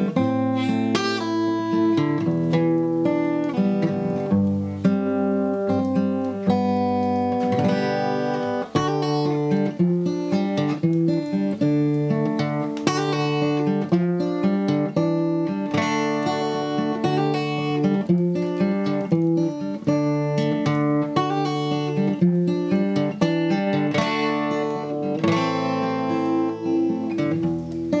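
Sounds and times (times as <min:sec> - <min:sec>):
acoustic guitar plucking: 0:00.0 - 0:28.0.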